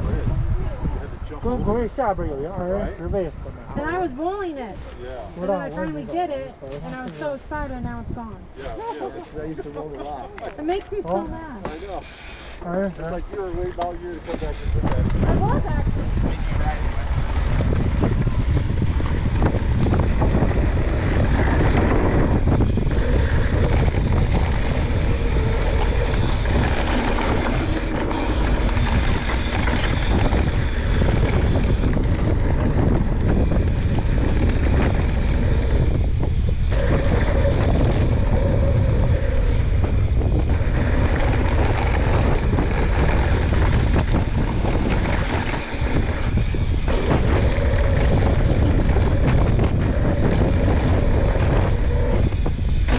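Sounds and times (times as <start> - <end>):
wind buffeting microphone: 0.0 - 11.9, 12.8 - 52.9
bike rattling: 1.1 - 52.9
tyres rolling over dirt: 16.8 - 52.9.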